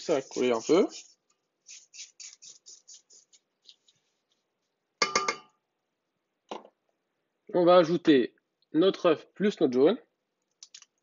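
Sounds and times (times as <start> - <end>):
spatula scraping metal bowl: 0.0 - 3.8.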